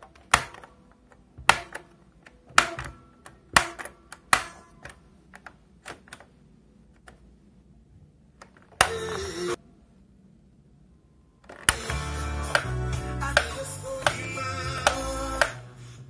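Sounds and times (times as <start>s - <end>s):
radio push buttons clicking: 8.4s - 9.4s, 11.4s - 12.8s.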